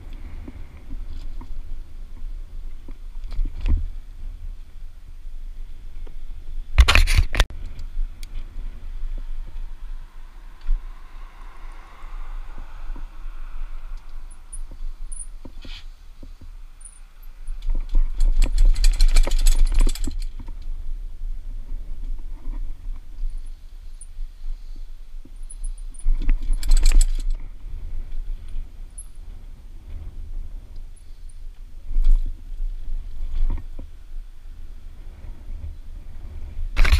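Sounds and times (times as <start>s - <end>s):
low rumble of wind and rolling: 0.0s - 36.9s
bike rattling over paving stones: 16.8s - 20.8s, 25.5s - 27.5s.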